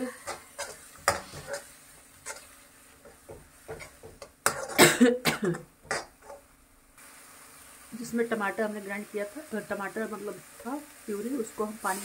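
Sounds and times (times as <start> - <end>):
person coughing: 4.7 - 5.7.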